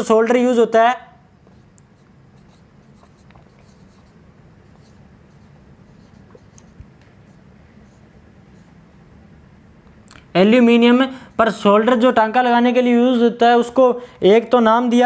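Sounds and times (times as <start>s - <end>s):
marker squeaking on whiteboard: 1.5s - 8.8s.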